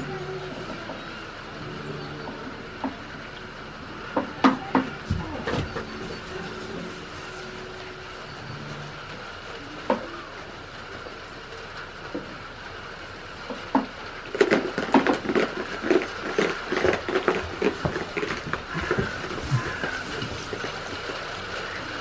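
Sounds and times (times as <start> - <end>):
goats rustling in straw: 5.0 - 9.0, 15.9 - 22.0.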